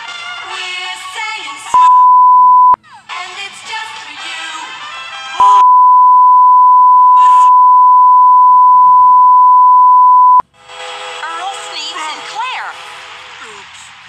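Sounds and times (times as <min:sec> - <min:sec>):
music: 0:00.0 - 0:01.8, 0:02.8 - 0:05.4, 0:10.6 - 0:14.0
censor bleep tone: 0:01.8 - 0:02.8, 0:05.4 - 0:10.4.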